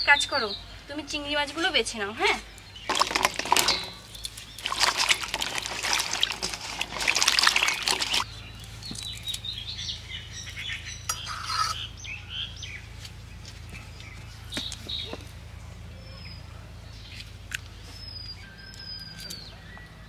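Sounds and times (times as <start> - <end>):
birds chirping faintly: 0.0 - 20.0
hands splashing water in bowl: 2.9 - 8.3.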